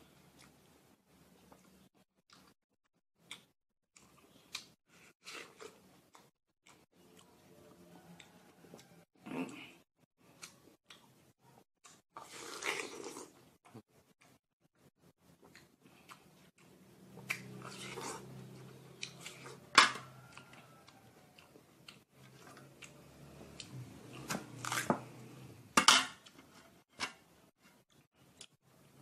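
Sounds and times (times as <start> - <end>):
wet chewing: 15.4 - 24.9
crunching bites of watermelon: 23.6 - 24.9.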